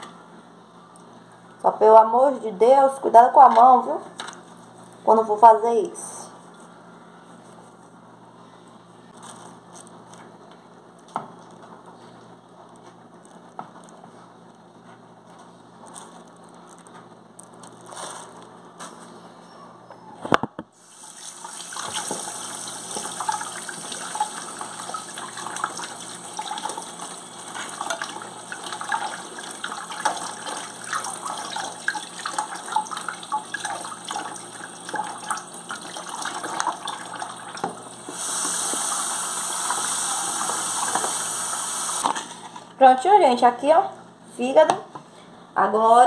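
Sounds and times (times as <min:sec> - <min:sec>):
tap running into sink: 0:21.7 - 0:23.5, 0:39.6 - 0:41.3.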